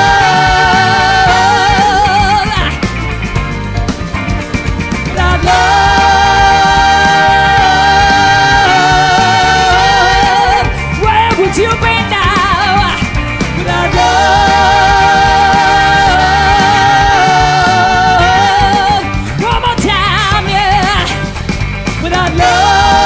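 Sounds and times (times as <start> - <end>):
horn section: 0.0 - 2.7, 5.2 - 10.8
person singing: 0.0 - 2.8, 5.1 - 21.2, 22.0 - 23.0
live band music: 0.0 - 23.0.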